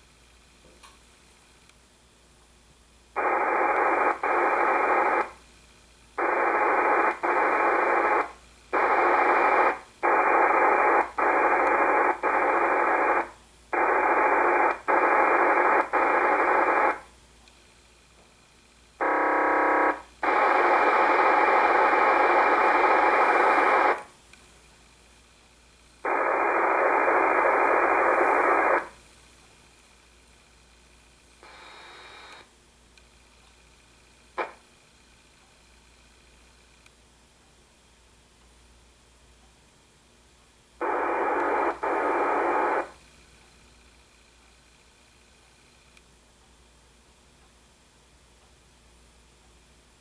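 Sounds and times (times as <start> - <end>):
buzzy radio tone burst: 3.2 - 5.4, 6.2 - 17.1, 19.0 - 24.1, 26.0 - 29.0, 31.4 - 32.5, 34.4 - 34.6, 40.8 - 43.0
radio static bursts: 3.2 - 5.4, 6.2 - 17.1, 19.0 - 24.1, 26.0 - 29.0, 31.4 - 32.5, 34.4 - 34.6, 40.8 - 43.0.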